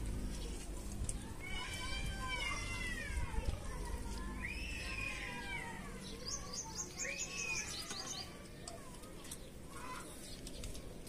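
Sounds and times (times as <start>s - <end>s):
bird chirping: 6.0s - 10.8s.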